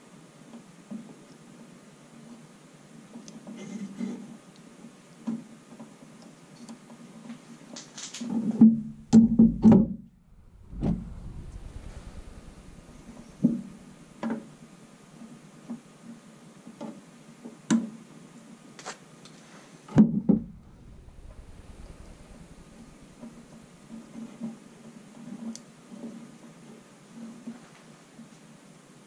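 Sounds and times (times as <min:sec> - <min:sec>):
faint steady hum: 0:08.6 - 0:15.9, 0:20.0 - 0:25.8.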